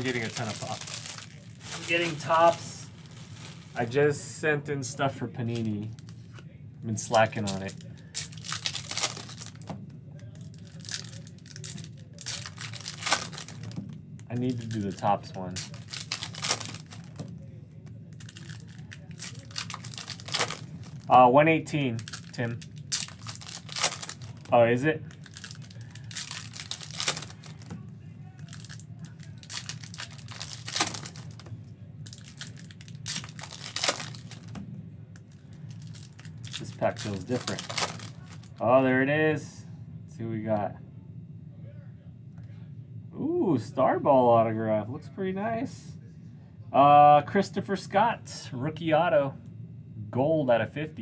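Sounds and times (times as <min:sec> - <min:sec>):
foil card pack crinkling and tearing: 0:00.0 - 0:04.0, 0:07.0 - 0:09.7, 0:10.3 - 0:17.3, 0:18.1 - 0:21.2, 0:21.8 - 0:27.7, 0:28.4 - 0:34.6, 0:35.3 - 0:38.6.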